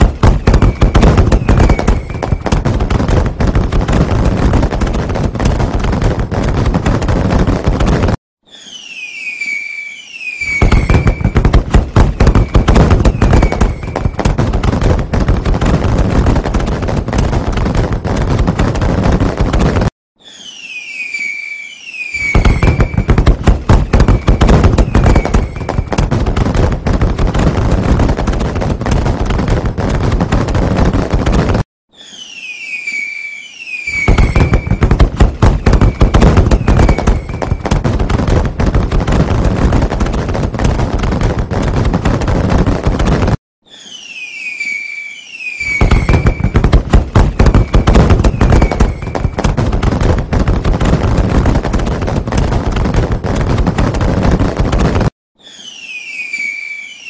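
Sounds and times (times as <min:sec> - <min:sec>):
falling firework whistles: 0:00.0 - 0:05.6, 0:08.4 - 0:14.9, 0:20.2 - 0:26.6, 0:31.9 - 0:38.4, 0:43.6 - 0:49.6, 0:55.4 - 0:57.0
fireworks crackling and banging: 0:00.0 - 0:57.0.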